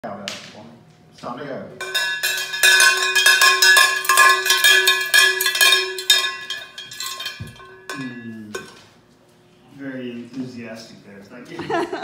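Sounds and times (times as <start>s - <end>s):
cowbell rung rapidly: 1.8s - 8.7s.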